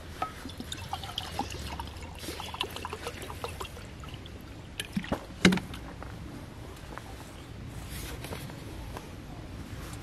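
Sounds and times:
water pouring into mug: 0:00.4 - 0:05.0.

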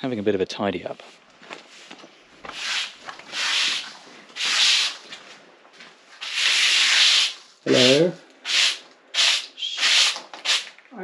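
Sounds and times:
broom sweeping floor: 0:00.8 - 0:10.8.

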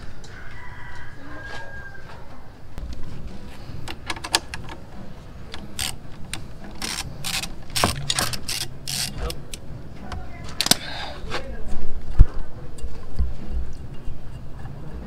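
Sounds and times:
ratchet wrench clicking: 0:05.5 - 0:09.6.

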